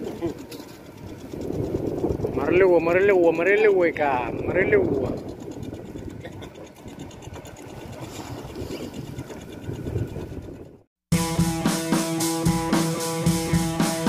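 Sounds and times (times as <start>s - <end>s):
boat engine chugging: 0.0s - 14.0s
band music with guitar and drums: 11.1s - 14.0s.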